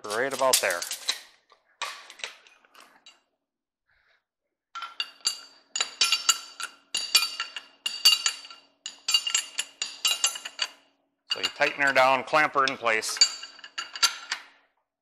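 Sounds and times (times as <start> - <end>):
metal-on-metal clinking: 0.0 - 1.2, 4.8 - 14.5.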